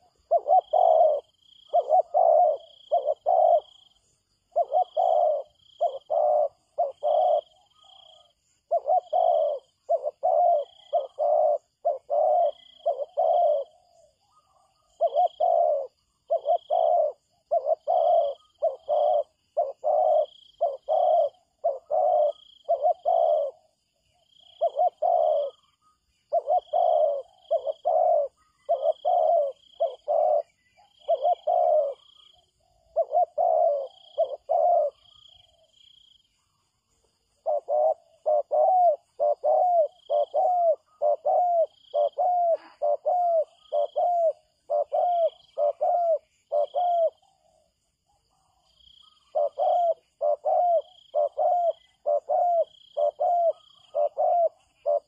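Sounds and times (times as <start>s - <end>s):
dove cooing: 0.0s - 55.0s.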